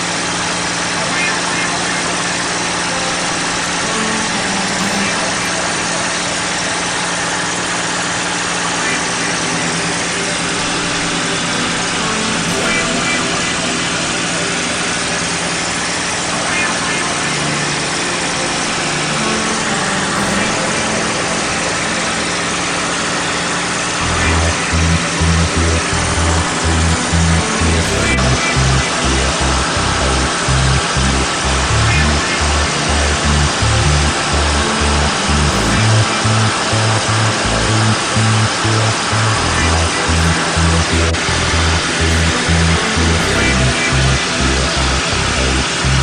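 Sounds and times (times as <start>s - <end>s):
propeller plane engine drone: 0.0s - 46.0s
music with heavy bass beat: 24.0s - 46.0s.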